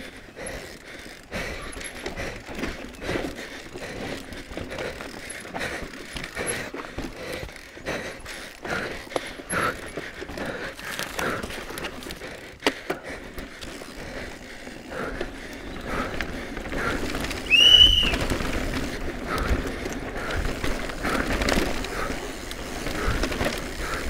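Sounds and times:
tyre roar on loose dirt: 0.4 - 24.0
bike frame rattling and knocking: 8.3 - 24.0
high squeal: 17.5 - 18.2.

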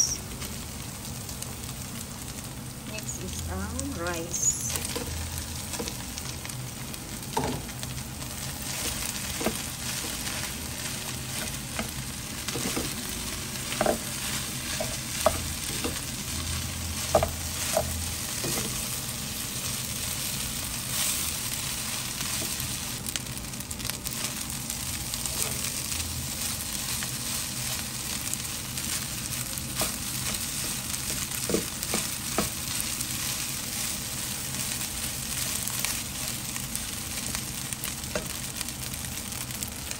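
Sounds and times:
rice sizzling in a wok: 0.0 - 39.9.

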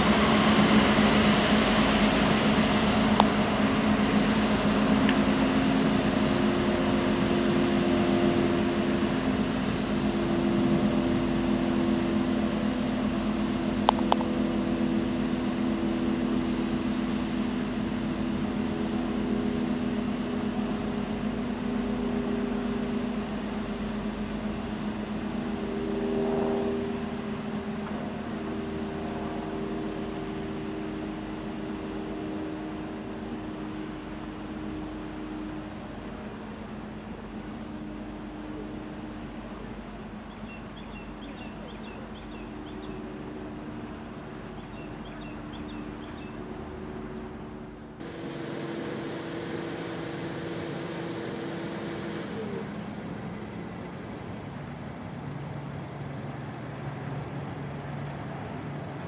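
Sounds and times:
diesel locomotive engine running: 0.0 - 59.0
high-pressure water jets hissing: 48.0 - 53.2.

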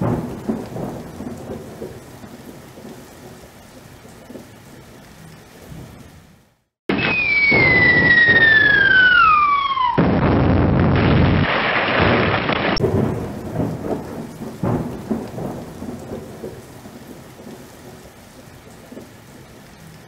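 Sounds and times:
descending whistle: 6.9 - 10.2
explosion blast: 6.9 - 13.9
scattered cracks and thumps: 10.0 - 12.8.

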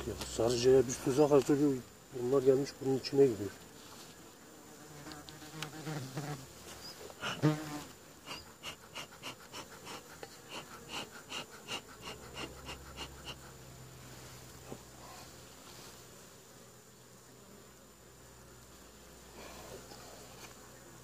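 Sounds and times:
honeybees buzzing: 0.0 - 21.0
bee smoker bellows puffing: 4.9 - 16.1.

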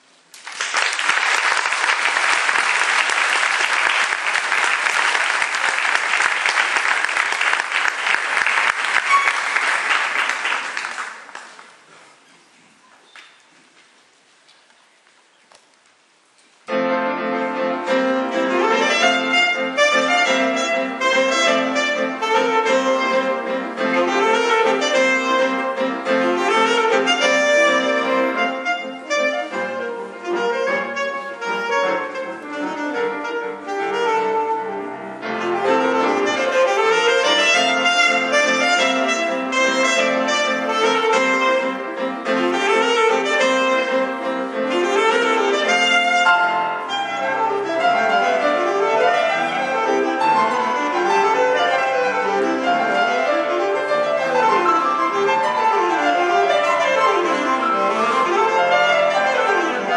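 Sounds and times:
piano accompaniment: 1.4 - 11.2, 16.7 - 59.9
saxophone melody: 16.7 - 59.9.

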